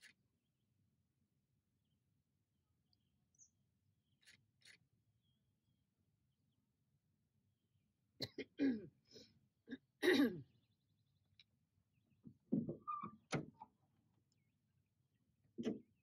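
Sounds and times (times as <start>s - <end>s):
person coughing: 8.2s - 8.9s, 9.7s - 10.4s.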